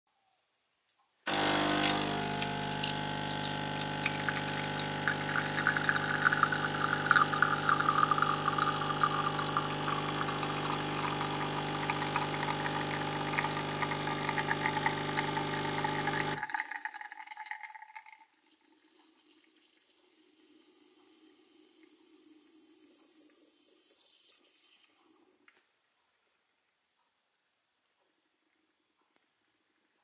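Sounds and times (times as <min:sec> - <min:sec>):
espresso machine pump humming: 0:01.3 - 0:17.9
espresso streaming into glass: 0:01.3 - 0:25.0.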